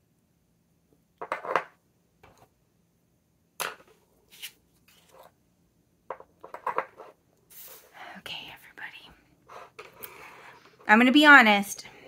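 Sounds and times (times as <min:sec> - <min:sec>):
small objects knocking on tabletop: 0:01.2 - 0:02.4, 0:06.1 - 0:07.0.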